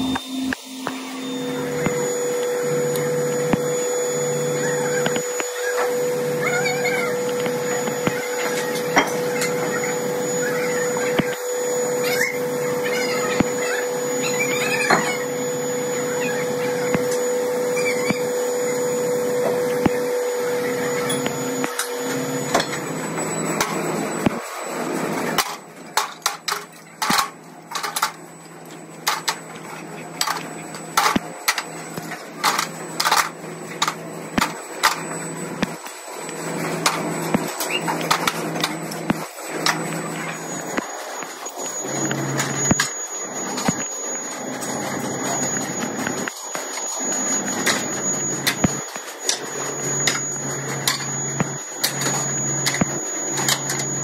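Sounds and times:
workshop machine humming: 0:00.0 - 0:54.0.

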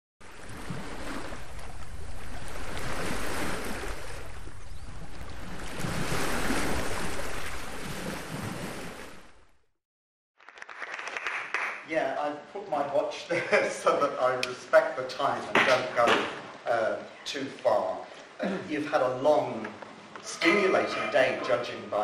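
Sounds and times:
waves breaking on beach: 0:00.2 - 0:09.4.

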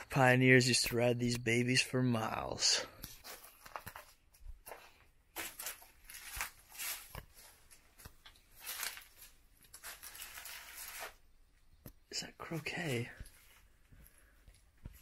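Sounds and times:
footsteps scuffing: 0:03.1 - 0:09.0, 0:12.7 - 0:15.0.

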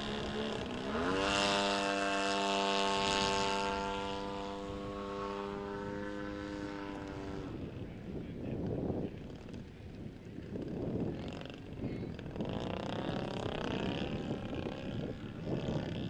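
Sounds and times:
model airplane propeller drone: 0:00.0 - 0:16.0.

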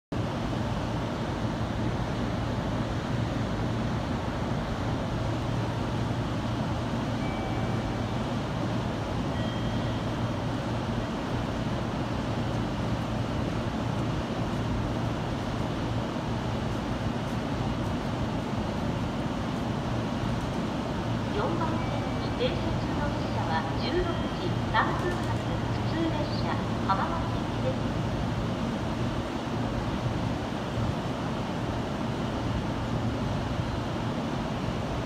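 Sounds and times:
station background noise: 0:00.2 - 0:35.0
electric train humming: 0:00.4 - 0:35.0.

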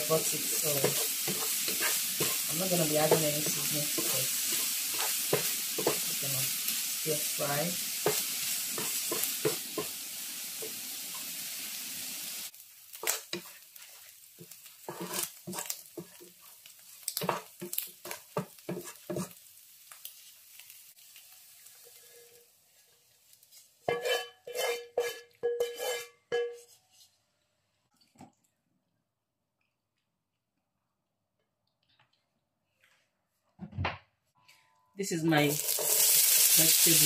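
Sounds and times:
prawns sizzling in oil: 0:00.0 - 0:26.1, 0:35.1 - 0:37.0
spatula scraping and clacking: 0:00.6 - 0:06.0, 0:13.0 - 0:19.4, 0:23.5 - 0:27.1
ringing knocks of cookware: 0:23.9 - 0:26.6.

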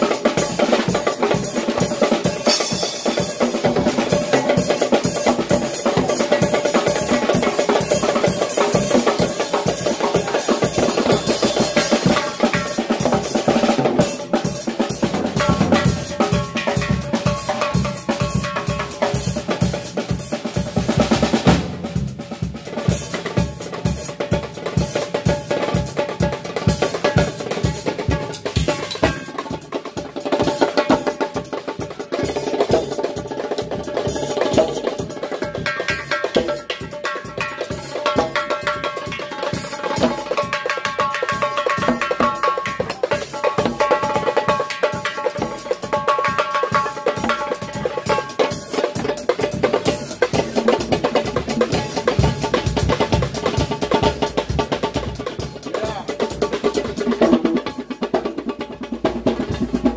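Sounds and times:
drum kit playing: 0:00.0 - 0:59.9
djembe strokes: 0:34.3 - 0:59.9.

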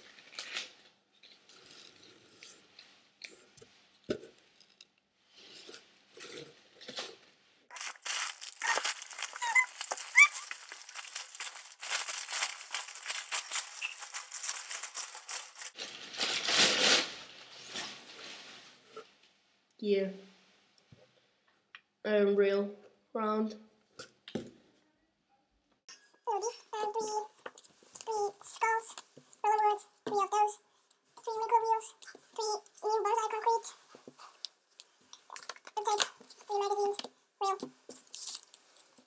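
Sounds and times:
packing paper crinkling: 0:07.7 - 0:18.0, 0:33.2 - 0:39.0.

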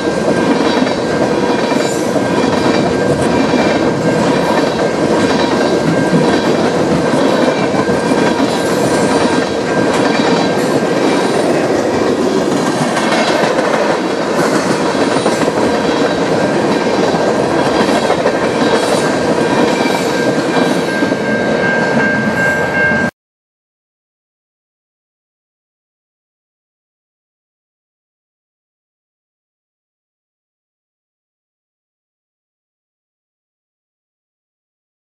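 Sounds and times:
train wheels clacking over rail joints: 0:00.0 - 0:21.2
high squeal from train wheels: 0:17.8 - 0:23.1.

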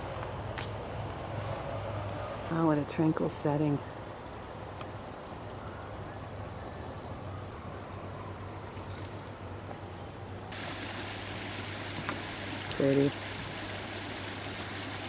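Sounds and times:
running trickling water: 0:10.5 - 0:15.0.

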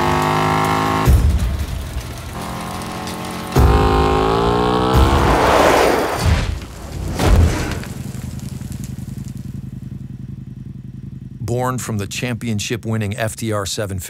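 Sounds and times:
motorcycle accelerating past: 0:02.3 - 0:06.2
heavy thump: 0:05.0 - 0:08.7
low steady rumble: 0:06.5 - 0:14.0.

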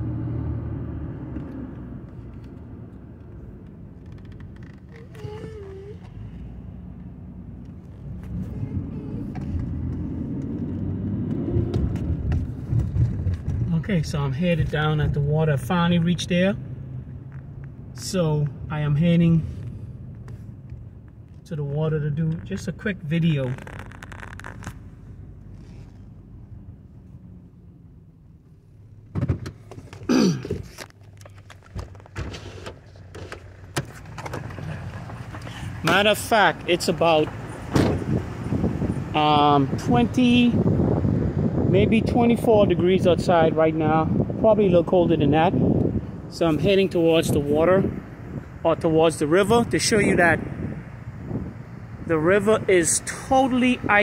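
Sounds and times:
car engine and road noise: 0:00.0 - 0:54.0
car door latch and opening: 0:29.1 - 0:34.6, 0:37.7 - 0:38.2.

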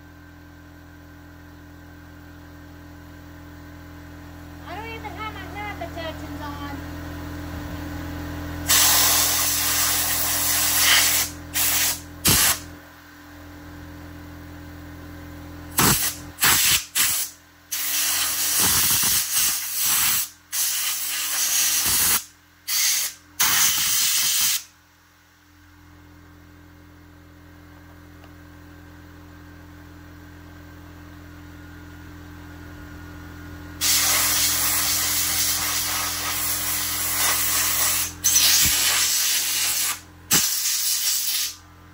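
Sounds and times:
compressed air blow gun blasts: 0:08.6 - 0:12.7, 0:15.7 - 0:24.6, 0:33.8 - 0:41.6.

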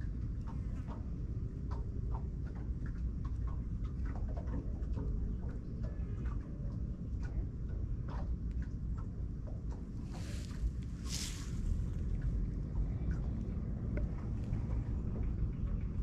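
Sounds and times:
faint scattered ticks and clicks: 0:00.0 - 0:16.0
wind buffeting microphone: 0:00.0 - 0:16.0.

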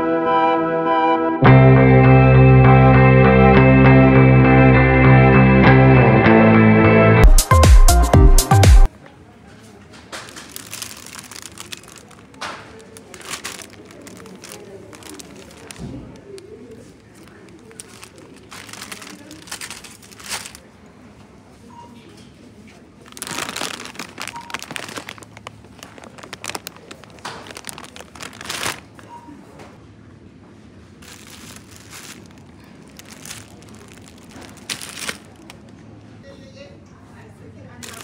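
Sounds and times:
crinkling and rustling: 0:09.8 - 0:20.7, 0:22.7 - 0:29.2, 0:31.0 - 0:35.8, 0:37.8 - 0:38.0.

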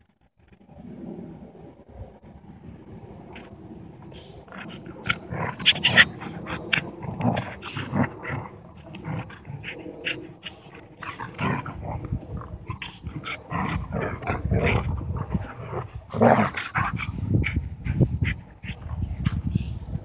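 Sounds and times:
dogs growling and snarling: 0:04.1 - 0:20.0.

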